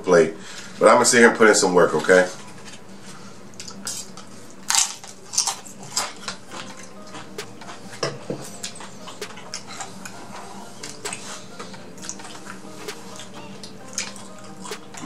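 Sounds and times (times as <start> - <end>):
crunchy chewing: 3.5 - 15.0.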